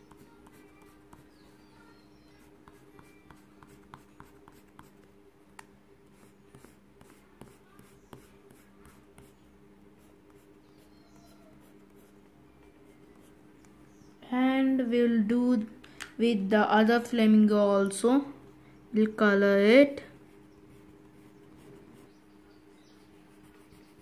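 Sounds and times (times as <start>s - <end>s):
pencil scratching on paper: 0.0s - 1.6s, 2.2s - 5.0s, 6.1s - 9.4s, 10.0s - 12.2s
steady low hum: 0.0s - 24.0s.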